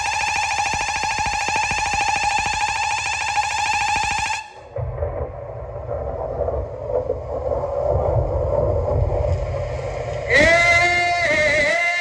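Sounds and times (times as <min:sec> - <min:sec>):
heavy distorted bass: 0:04.6 - 0:11.6.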